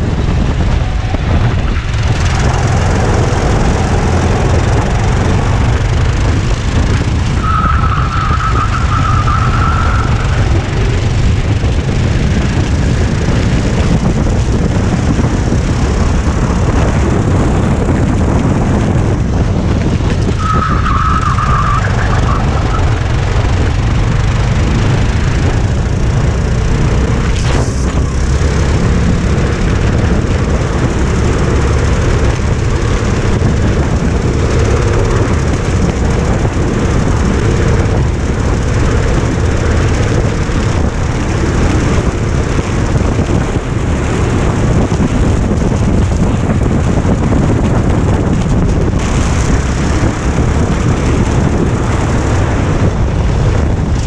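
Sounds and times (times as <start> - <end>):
go-kart engine racing: 0.0 - 54.0
high squeal: 7.4 - 11.0, 20.4 - 23.0.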